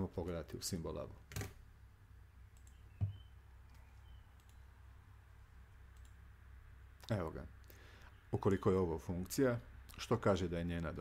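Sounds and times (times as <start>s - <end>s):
low steady hum: 0.0s - 11.0s
computer mouse clicks: 2.5s - 4.7s, 5.9s - 6.2s.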